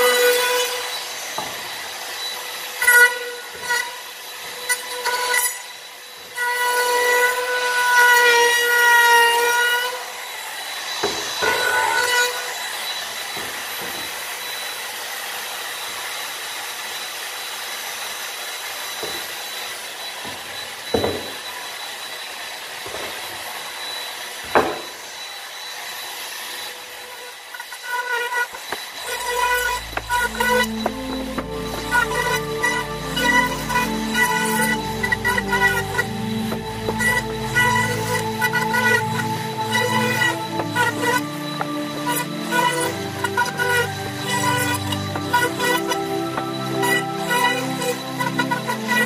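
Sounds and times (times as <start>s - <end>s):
router cutting wood: 0.0s - 49.0s
wood router motor whine: 0.0s - 49.0s.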